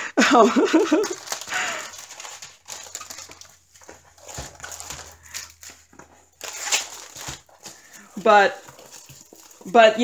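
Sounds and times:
plastic wrapping crinkling: 0.4 - 10.0
paper canvas rustling and sliding: 1.0 - 9.7.

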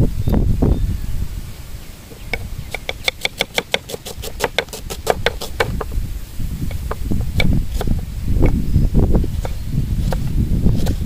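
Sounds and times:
knife chopping on wooden board: 2.7 - 6.0.

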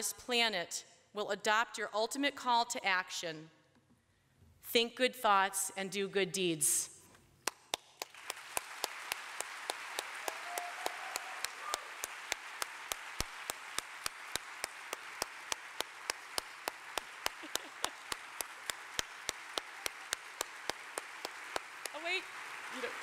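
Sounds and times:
audience applauding: 7.5 - 23.0.

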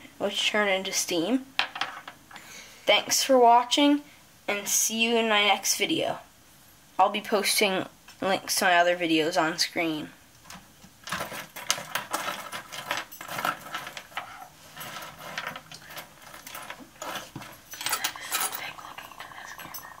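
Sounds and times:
metal lumps clinking on wood: 11.0 - 18.6.

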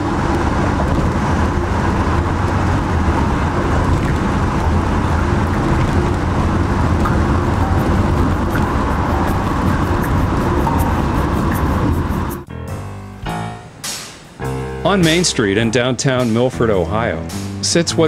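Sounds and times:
road traffic rumble: 0.0 - 12.5.

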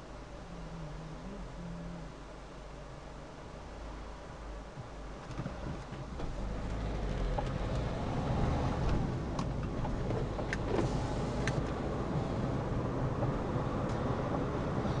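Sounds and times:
car engine and tyre noise: 2.7 - 15.0
light ticks: 13.8 - 14.1.

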